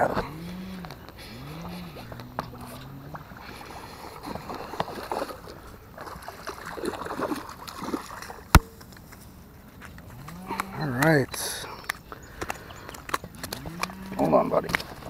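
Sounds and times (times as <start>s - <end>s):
fish splashing in water: 0.4s - 8.7s.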